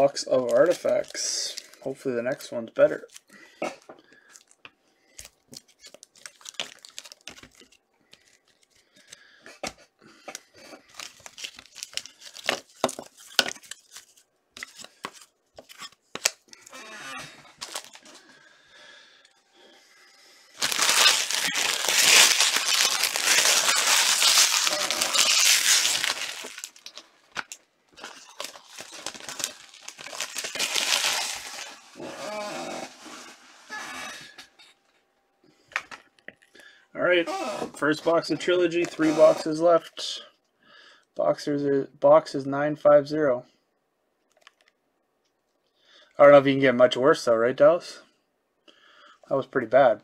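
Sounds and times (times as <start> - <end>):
wrapping torn and crumpled: 0.0 - 1.9, 4.2 - 9.3, 10.4 - 16.8, 17.4 - 18.4, 20.5 - 34.3
cards clicking and rustling: 4.3 - 9.2, 10.3 - 16.7.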